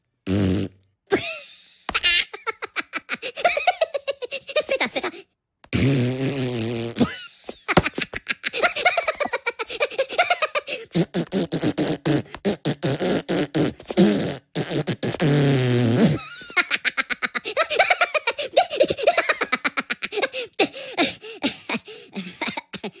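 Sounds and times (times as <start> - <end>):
low fart noise: 0.2 - 0.8, 5.7 - 7.1, 11.0 - 16.2
high-pitched cartoon voices giggling: 1.1 - 5.3, 7.0 - 10.7, 16.2 - 20.6.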